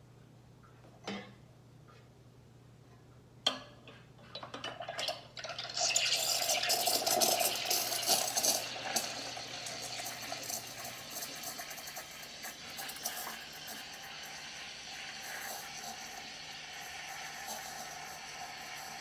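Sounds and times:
steam wand hissing: 7.7 - 19.0.

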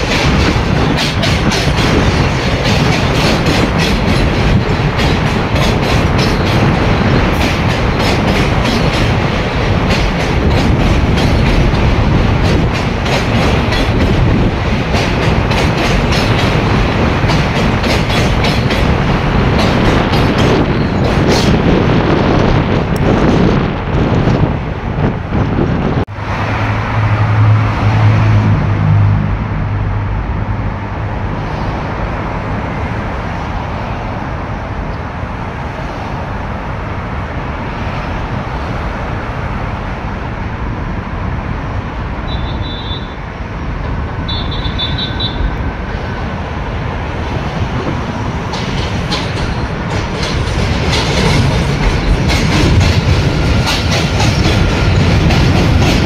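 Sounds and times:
wheels clicking over rail joints: 0.0 - 21.8, 47.2 - 56.0
subway train rumbling: 0.0 - 56.0.

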